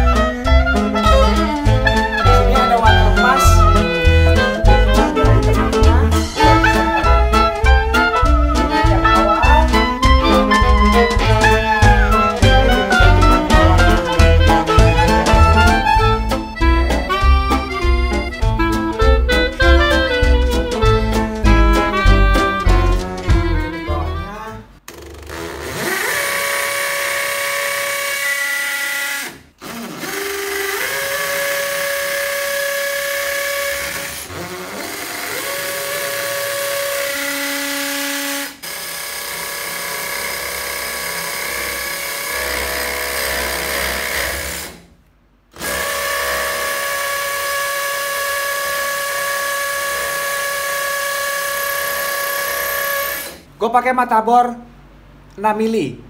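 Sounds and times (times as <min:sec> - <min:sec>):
cordless drill boring into masonry: 0:25.3 - 0:44.9, 0:45.6 - 0:53.4.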